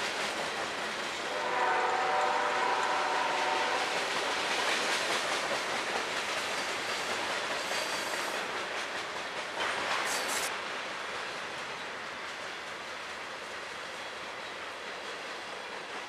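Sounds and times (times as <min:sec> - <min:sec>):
train wheels rumbling on rail: 0:00.0 - 0:16.0
locomotive horn: 0:01.3 - 0:04.0.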